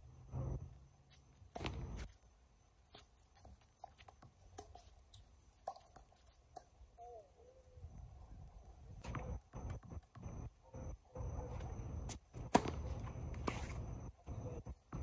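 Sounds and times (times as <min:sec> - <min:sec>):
tennis ball hits and bounces: 0:01.5 - 0:02.0, 0:12.4 - 0:13.9
shoe scuffs: 0:11.6 - 0:14.0
tennis serve struck: 0:12.5 - 0:12.9.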